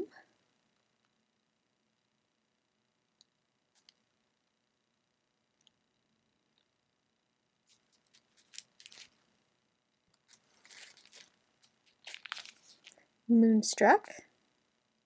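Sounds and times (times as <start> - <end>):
plastic packaging crinkling: 7.6 - 9.2, 10.1 - 13.0.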